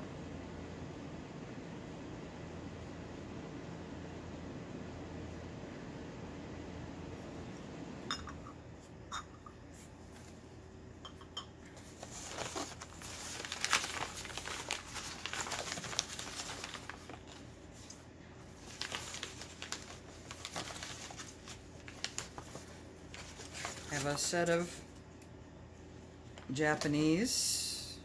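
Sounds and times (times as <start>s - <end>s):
packing paper crinkling: 11.8s - 24.7s.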